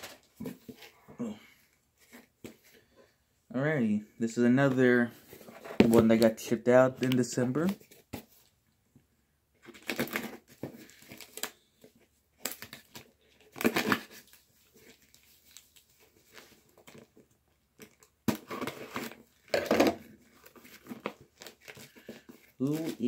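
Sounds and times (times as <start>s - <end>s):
wrapping paper tearing and crumpling: 12.4s - 17.0s.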